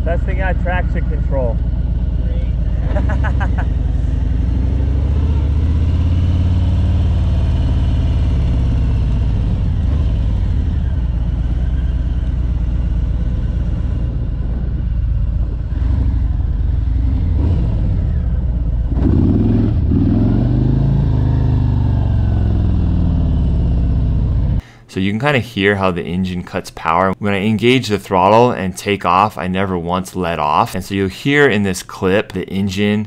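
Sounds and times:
motorcycle engine pulling away: 1.6s - 24.6s.

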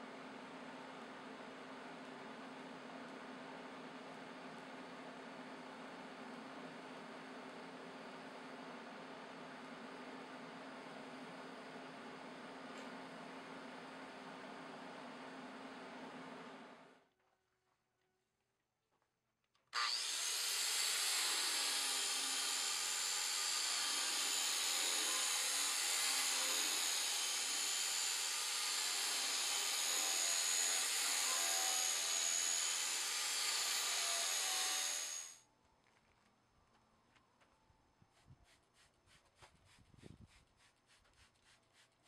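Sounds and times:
angle grinder sanding steel: 19.8s - 35.4s.

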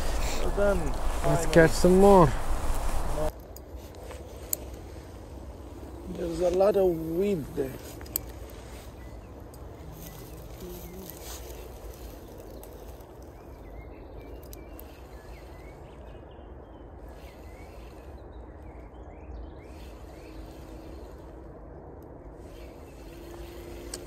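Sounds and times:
low outdoor rumble: 0.0s - 24.0s
faint bird chirps: 8.2s - 21.4s.

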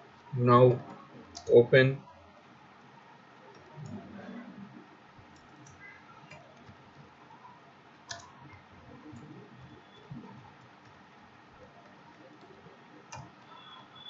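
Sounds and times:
keyboard keystrokes: 8.1s - 8.4s.

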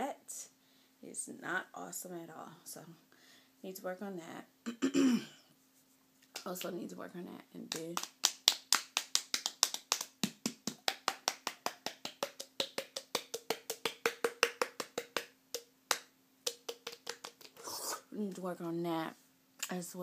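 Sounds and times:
hands slapping cheeks: 7.7s - 17.6s.

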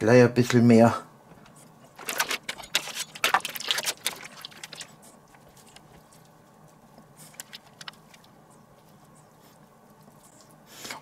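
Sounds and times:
plastic packaging crinkling: 1.9s - 6.5s.

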